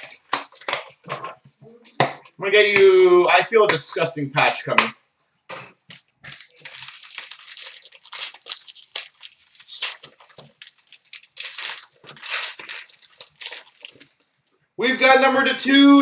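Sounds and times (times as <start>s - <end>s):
packaging tearing and crinkling: 6.2s - 14.2s.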